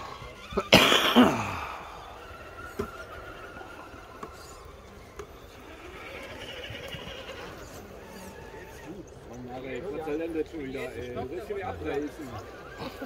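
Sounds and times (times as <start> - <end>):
groan-like voice: 1.2 - 2.0.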